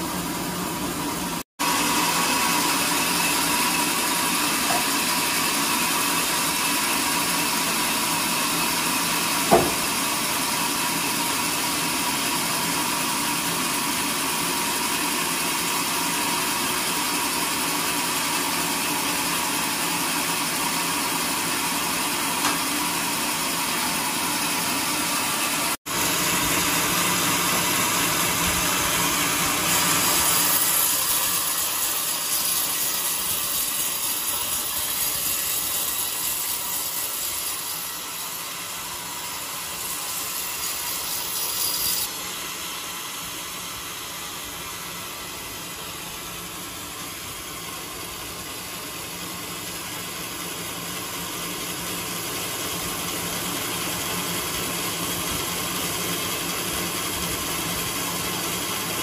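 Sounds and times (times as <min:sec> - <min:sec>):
band saw machinery running: 0:00.0 - 0:59.0
sharp knock: 0:09.5 - 0:09.9.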